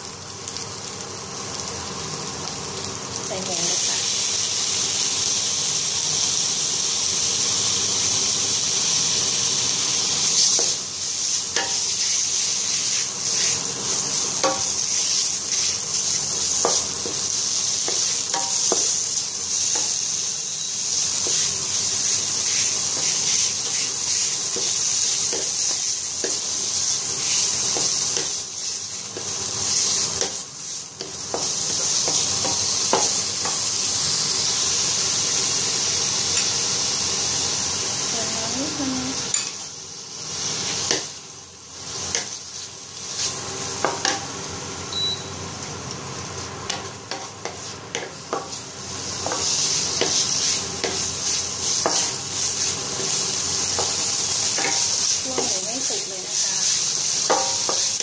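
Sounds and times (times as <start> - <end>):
food sizzling in oil: 0.0 - 58.0
spatula scraping a wok: 10.2 - 33.6, 41.9 - 43.5, 46.4 - 58.0.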